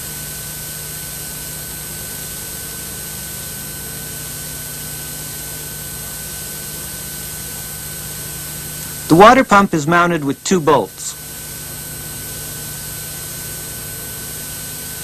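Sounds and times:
tape hiss: 0:09.0 - 0:11.2.

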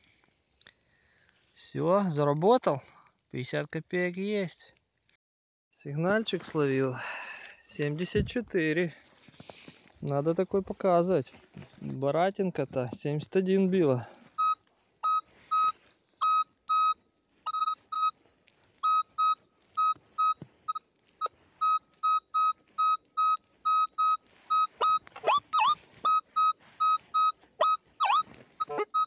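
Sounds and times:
metal detector beeping: 0:14.4 - 0:29.0.

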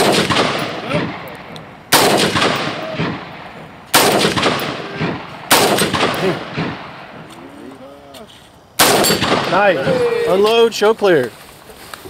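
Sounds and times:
rifle shots echoing: 0:00.0 - 0:07.4, 0:08.8 - 0:10.1.

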